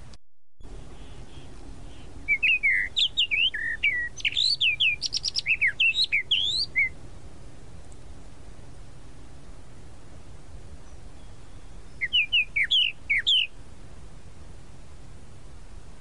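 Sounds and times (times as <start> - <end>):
background hiss: 0.0 - 16.0
mockingbird singing: 0.7 - 7.0, 10.8 - 13.6.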